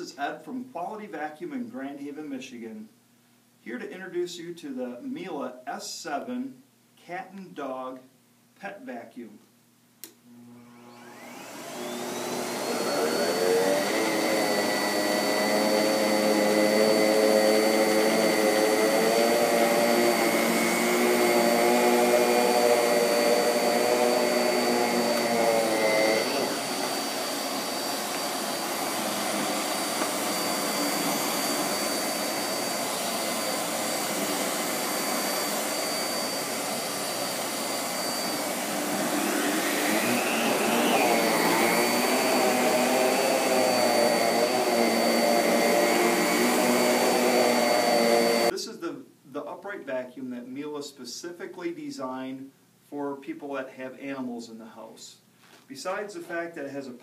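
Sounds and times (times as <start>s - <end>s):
vacuum cleaner motor whining: 10.3s - 48.5s.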